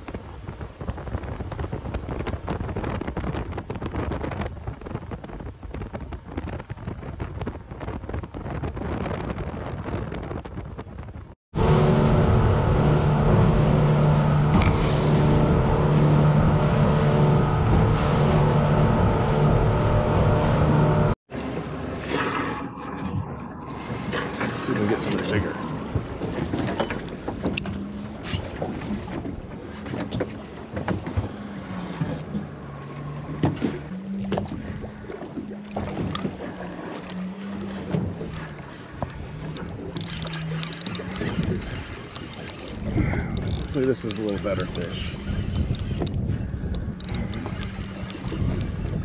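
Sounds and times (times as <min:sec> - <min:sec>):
water noise: 0:00.0 - 0:49.0
wind: 0:00.0 - 0:49.0
boat engine drone: 0:11.5 - 0:49.0.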